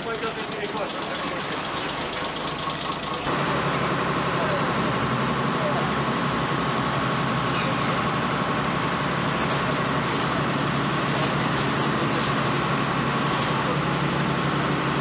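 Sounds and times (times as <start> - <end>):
crane engine running: 0.0 - 15.0.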